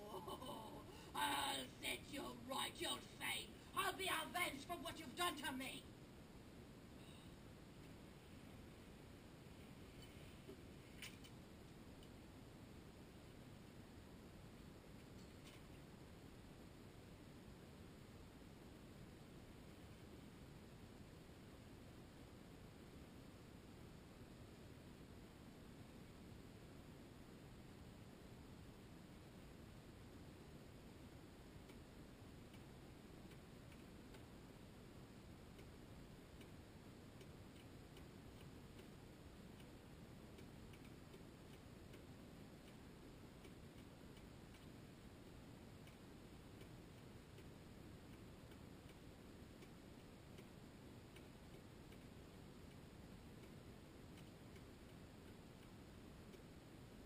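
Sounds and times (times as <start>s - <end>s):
faint light ticks: 10.0s - 12.2s, 30.4s - 57.0s.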